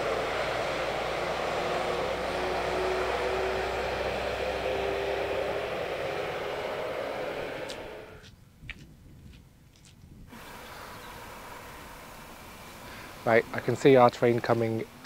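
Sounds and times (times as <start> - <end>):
diesel train passing: 0.0 - 8.2, 10.3 - 15.0
faint droning tone: 0.0 - 8.2.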